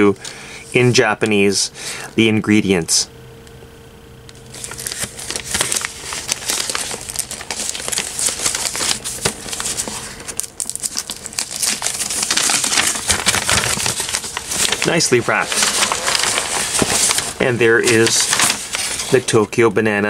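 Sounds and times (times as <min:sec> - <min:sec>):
gift wrapping paper crinkling: 0:04.4 - 0:19.5.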